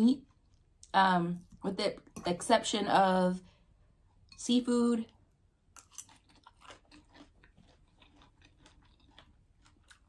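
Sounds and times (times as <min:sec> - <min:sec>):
chewing with small crunches: 0:05.1 - 0:10.0.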